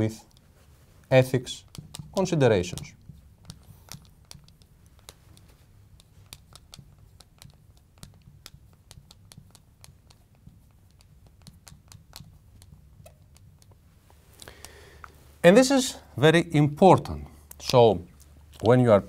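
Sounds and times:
marker writing on glass: 0:01.2 - 0:13.9.

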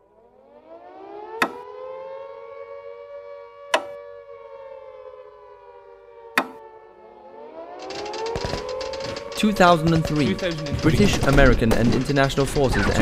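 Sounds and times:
air-raid siren winding: 0:01.1 - 0:01.8, 0:03.7 - 0:04.0, 0:06.3 - 0:06.7, 0:07.5 - 0:13.0
loud sharp clock ticks: 0:01.4 - 0:01.6, 0:03.8 - 0:04.0, 0:06.4 - 0:06.6, 0:07.8 - 0:13.0.

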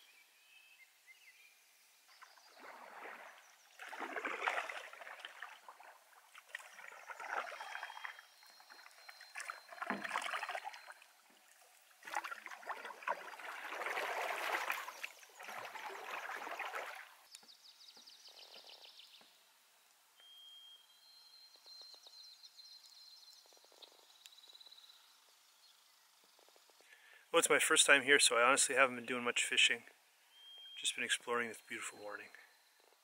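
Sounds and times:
paddle strokes splashing: 0:02.2 - 0:17.3.

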